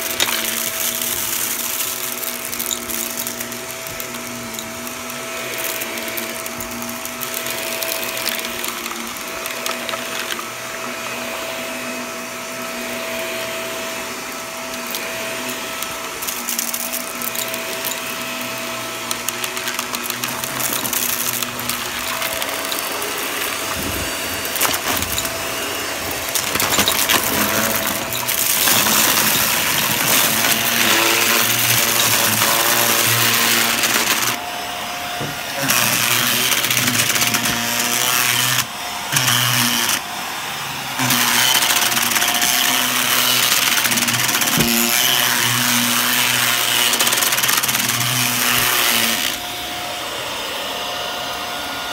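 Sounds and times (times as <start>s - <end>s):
debris clicking and rattling: 0.0s - 10.6s, 15.7s - 34.4s, 41.0s - 49.4s
vacuum cleaner motor whining: 0.0s - 51.9s.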